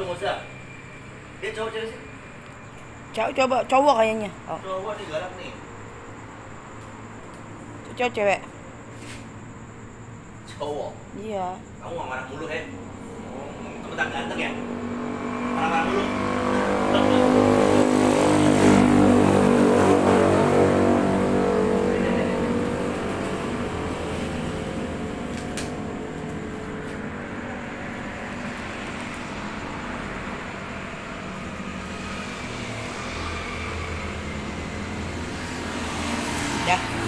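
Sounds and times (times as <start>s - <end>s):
vehicle engine humming: 11.3s - 37.0s.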